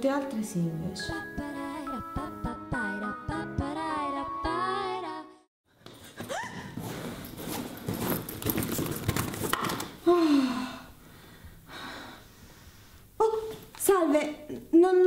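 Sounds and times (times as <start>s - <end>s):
music: 0.0s - 5.5s
objects rustling and clicking: 5.9s - 10.0s
woman sighing: 10.0s - 11.0s.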